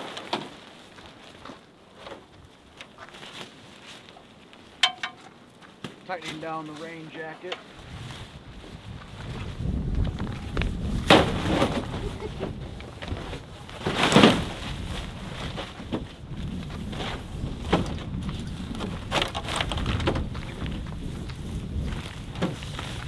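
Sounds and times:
tent and camping gear handling: 0.0s - 23.0s
wind rumbling on microphone: 7.6s - 23.0s.

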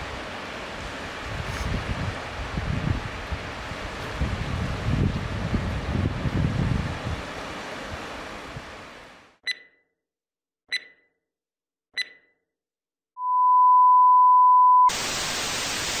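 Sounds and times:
short high beeps: 9.4s - 9.9s, 10.7s - 11.2s, 12.0s - 12.4s
steady lower electronic tone: 13.2s - 14.9s
background hiss: 14.9s - 16.0s
burst of static hiss: 14.9s - 16.0s.

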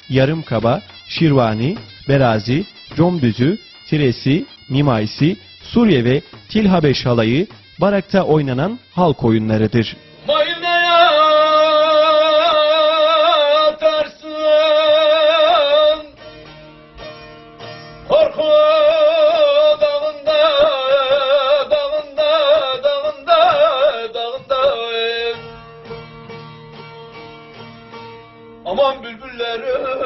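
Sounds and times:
lute playing: 0.0s - 30.0s.

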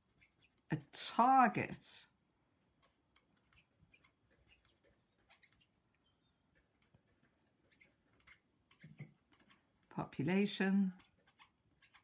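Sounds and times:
marker writing on paper: 0.0s - 0.7s, 2.8s - 9.8s.

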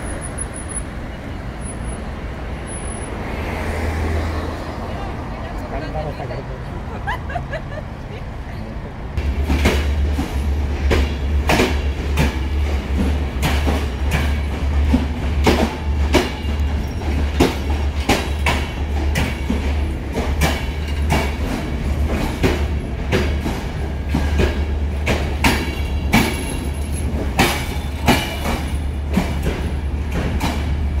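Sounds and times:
vehicle rumble: 0.0s - 13.4s.

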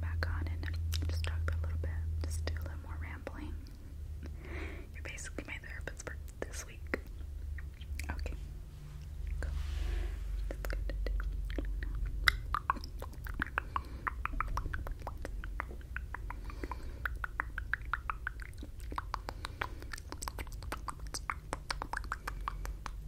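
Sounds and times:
steady low hum: 0.0s - 23.0s
lip and tongue clicks: 6.3s - 8.2s, 10.4s - 23.0s.

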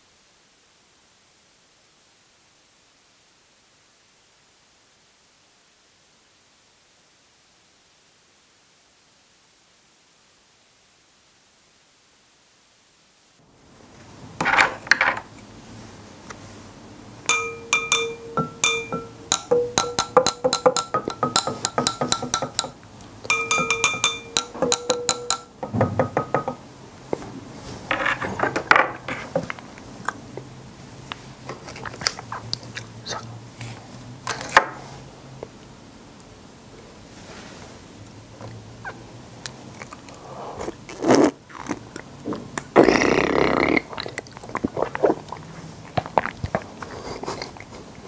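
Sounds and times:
sticks clinking drinking glasses: 17.3s - 26.5s.

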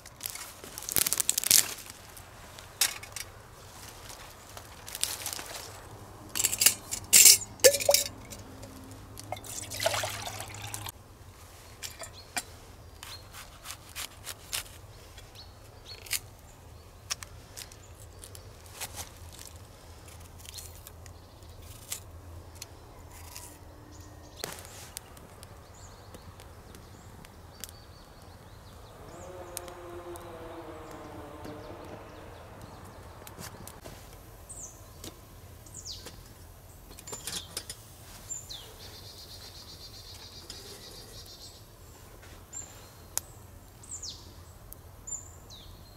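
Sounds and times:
handling clicks and knocks: 6.3s - 9.7s
metal clinks on steel bottle: 6.4s - 8.5s
water pouring into metal pot: 7.6s - 8.4s, 9.2s - 10.9s.

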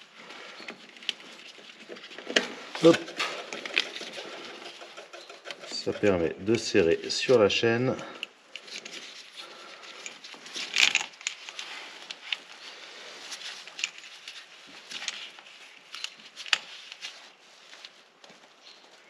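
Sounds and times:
metal clicks and rattles: 0.7s - 6.3s, 9.8s - 12.4s
metal scrape: 1.4s - 7.2s.

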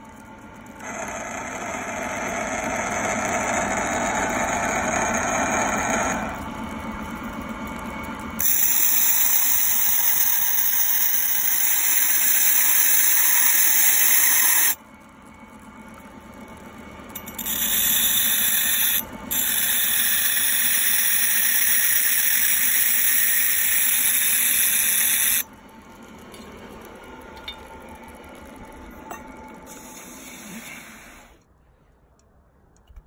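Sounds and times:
metal fork rasping on spinning stone: 8.4s - 14.8s, 17.2s - 25.4s.

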